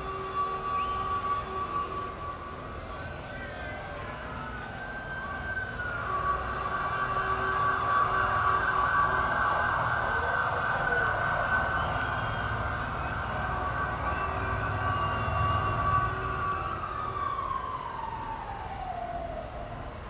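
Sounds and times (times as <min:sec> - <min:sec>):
sustained synthesizer chord: 0:12.5 - 0:17.5.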